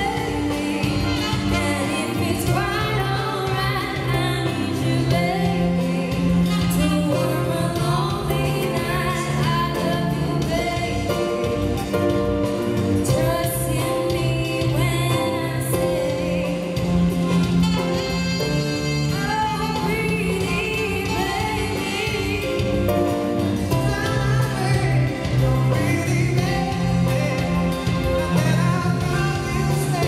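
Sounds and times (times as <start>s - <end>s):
woman singing into microphone: 0.0s - 11.7s, 12.9s - 17.8s, 18.9s - 30.0s
live band playing: 0.0s - 30.0s.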